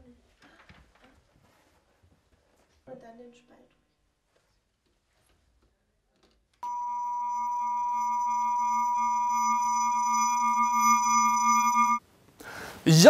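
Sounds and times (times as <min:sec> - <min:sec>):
steady electronic chord tone: 0:06.6 - 0:12.0.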